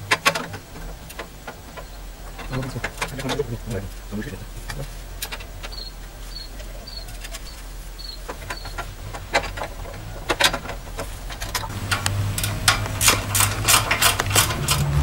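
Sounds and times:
small bird chirping: 5.5s - 8.9s.

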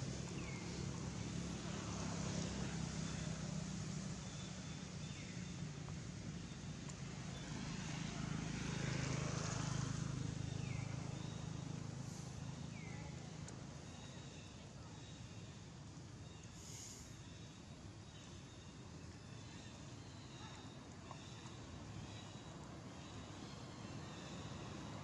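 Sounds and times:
low engine hum: 0.0s - 25.0s.

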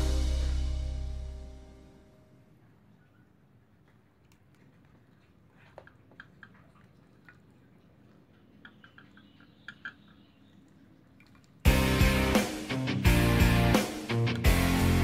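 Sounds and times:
low steady hum: 0.0s - 4.4s.

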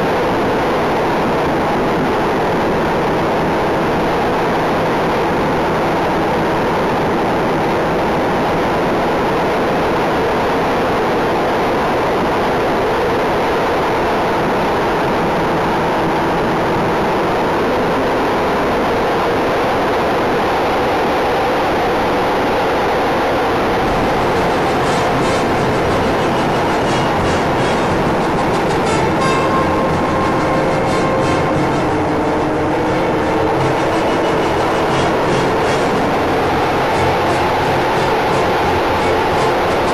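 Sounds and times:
electric motors and propellers droning: 23.6s - 39.9s.

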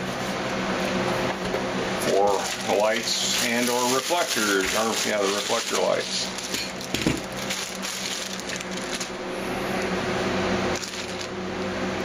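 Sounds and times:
steady low hum: 0.0s - 12.0s
plastic wrapping crackling: 2.3s - 9.2s, 10.7s - 11.4s.

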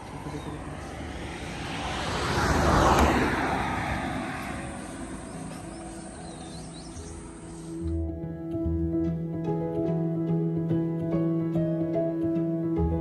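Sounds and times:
vehicle passing by: 0.0s - 7.9s.

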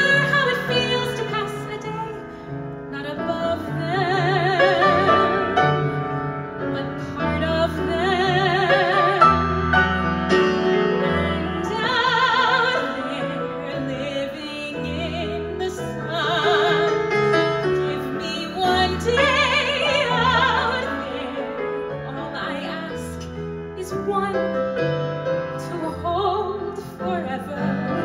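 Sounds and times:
woman singing a ballad: 0.0s - 6.0s, 6.6s - 9.4s, 11.0s - 24.9s, 25.5s - 28.0s
piano accompaniment: 0.0s - 28.0s.

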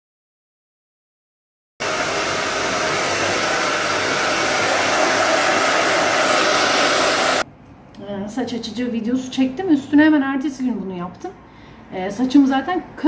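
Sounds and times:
hair dryer blowing: 1.8s - 7.5s.

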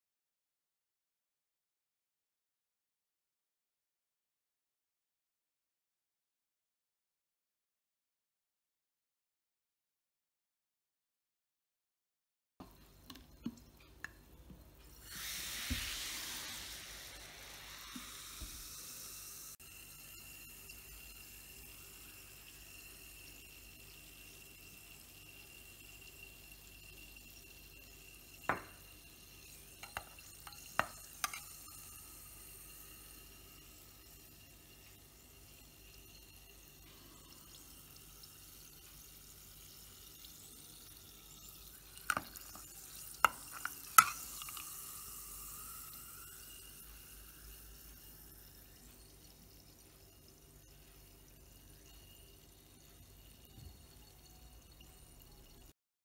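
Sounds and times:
carbonated water fizzing in glass: 12.9s - 55.8s.

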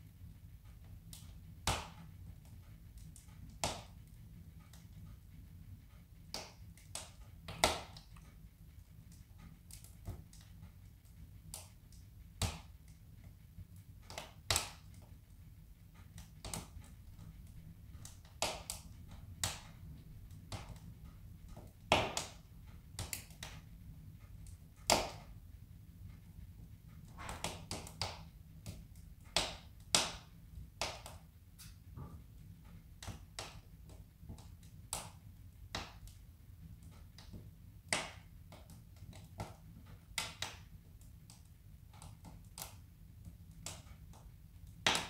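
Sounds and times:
logs crackling and popping in stove: 0.0s - 45.0s
low steady hum: 16.8s - 23.0s.

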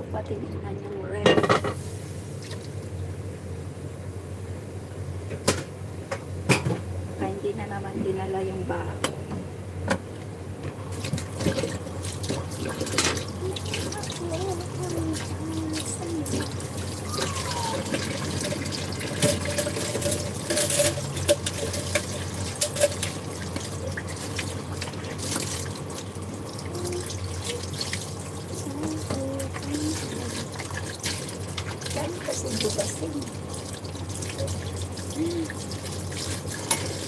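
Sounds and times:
tap water running into sink: 10.9s - 37.0s.

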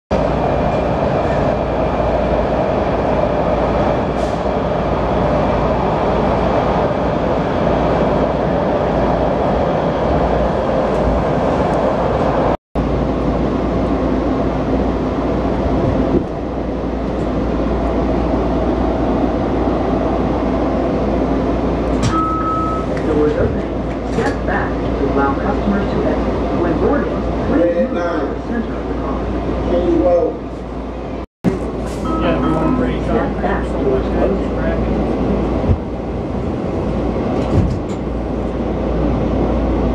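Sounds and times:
subway train wheels rumbling: 0.1s - 39.9s.

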